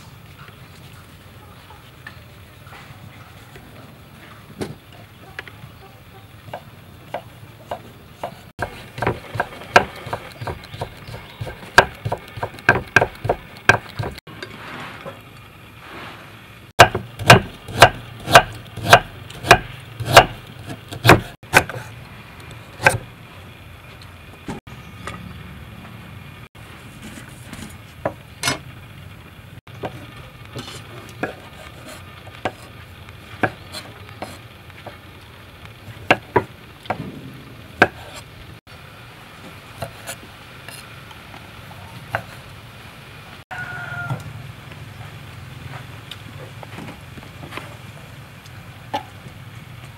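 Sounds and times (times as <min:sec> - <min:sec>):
knife tapping wooden chopping block: 0:06.5 - 0:14.2.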